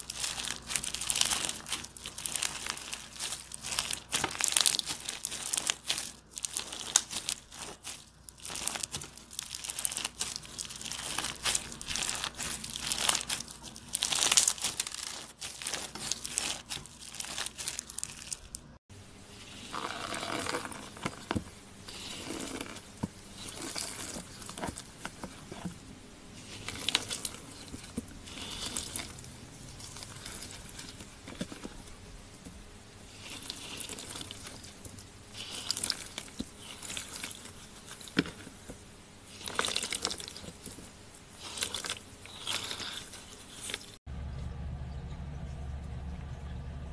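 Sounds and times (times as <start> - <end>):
gel bead stress ball squishing: 0.0 - 18.7
fingers scraping through glitter: 19.4 - 25.7, 26.4 - 31.9, 33.1 - 38.7.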